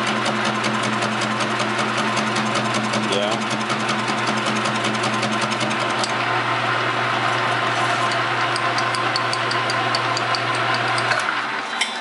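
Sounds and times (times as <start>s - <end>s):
metal lathe running: 0.0s - 11.9s
lathe ticking: 8.1s - 11.1s.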